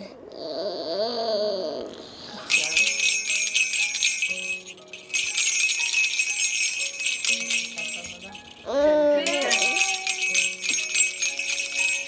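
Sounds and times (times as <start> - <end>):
soft background music: 0.9 - 12.0
baby toy rattle jingling: 2.5 - 12.0.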